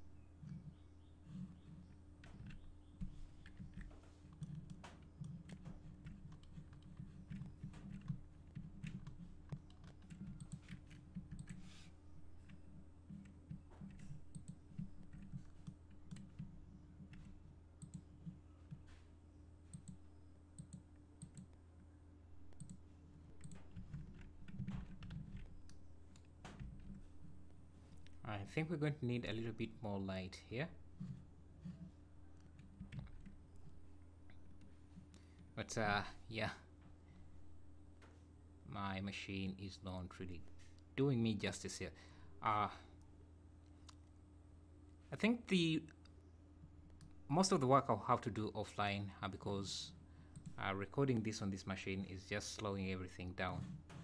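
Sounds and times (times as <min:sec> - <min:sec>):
low electrical hum: 0:00.0 - 0:54.0
mouse and keyboard clicking: 0:01.6 - 0:11.8.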